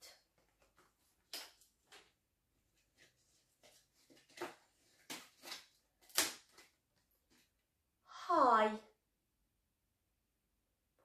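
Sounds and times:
paper cards rustling: 0.3s - 7.6s.

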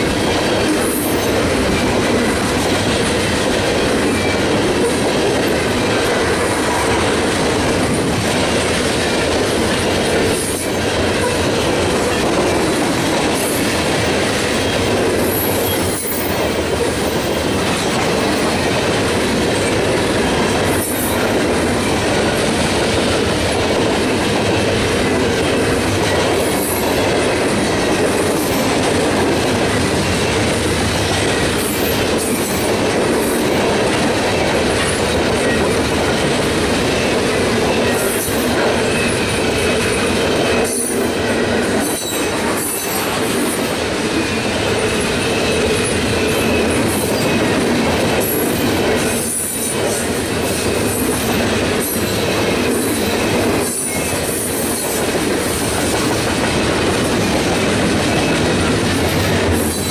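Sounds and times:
train wheels rolling on rails: 0.0s - 59.9s
high-pitched wheel squeals: 15.3s - 16.4s.

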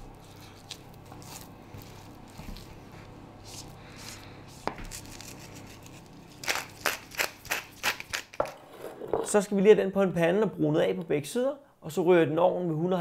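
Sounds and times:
low room hum: 0.0s - 13.0s
meat rubbing on cutting board: 0.1s - 8.4s.

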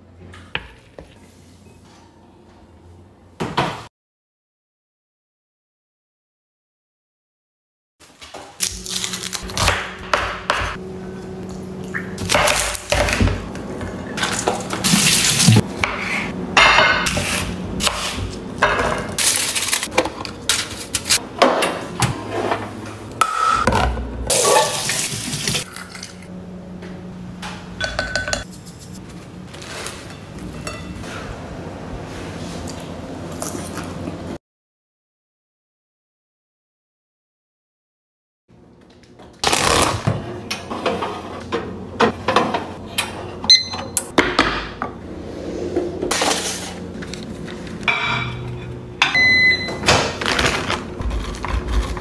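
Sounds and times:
steady low hum: 8.6s - 24.3s
clatter of dishes and utensils: 47.8s - 49.2s.

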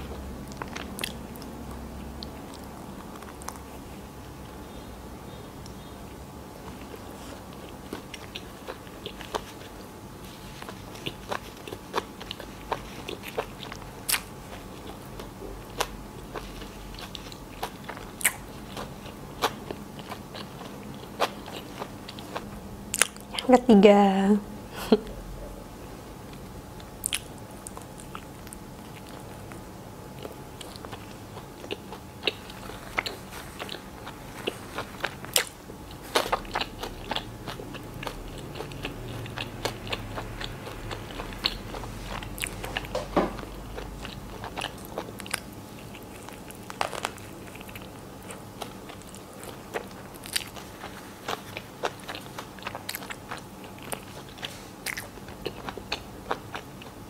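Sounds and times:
person biting and chewing sandwich: 30.2s - 56.8s.

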